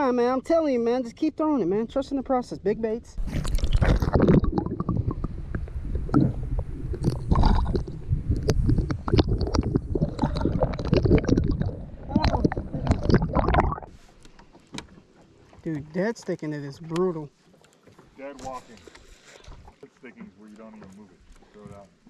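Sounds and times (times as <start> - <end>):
muffled underwater sloshing: 3.2 - 15.8.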